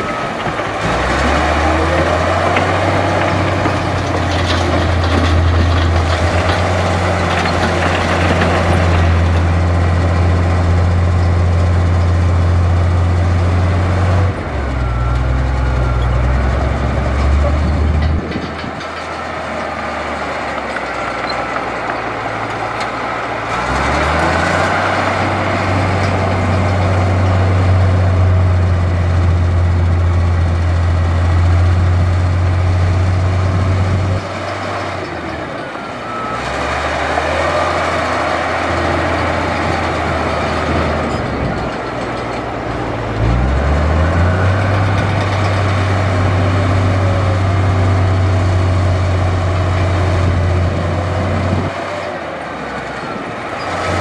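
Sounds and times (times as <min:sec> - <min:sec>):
heavy diesel engine running: 0:00.0 - 0:54.0.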